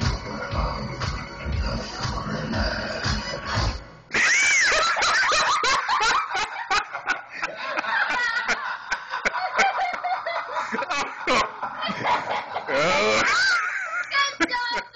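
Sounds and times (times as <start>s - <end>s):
person cackling with laughter: 4.1s - 14.9s.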